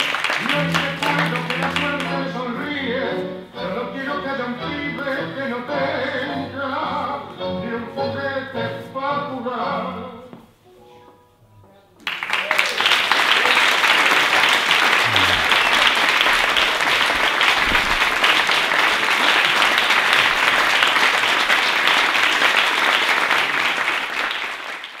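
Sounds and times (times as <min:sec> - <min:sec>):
audience applauding: 0:00.0 - 0:02.3, 0:12.0 - 0:25.0.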